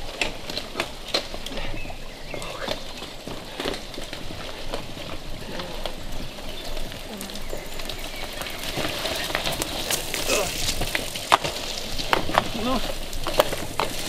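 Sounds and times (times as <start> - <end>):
bike tyres in mud: 0.0 - 14.0.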